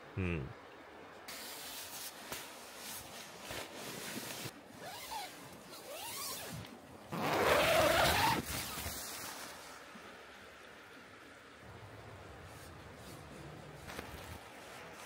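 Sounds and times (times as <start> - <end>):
jacket fabric rustling: 1.3 - 9.4
tent zipper pulled open: 3.5 - 9.0.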